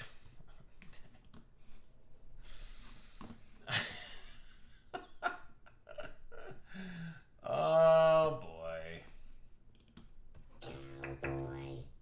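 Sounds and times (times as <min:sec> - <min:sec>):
person breathing: 0:01.6 - 0:03.5, 0:06.6 - 0:07.4.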